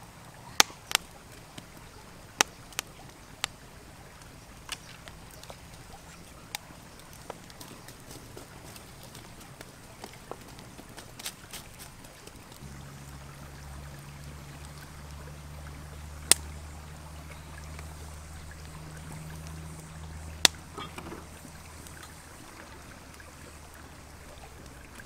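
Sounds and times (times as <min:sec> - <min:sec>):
soft hiss: 0:00.0 - 0:25.0
wood fire popping: 0:00.2 - 0:25.0
steady low hum: 0:12.6 - 0:25.0.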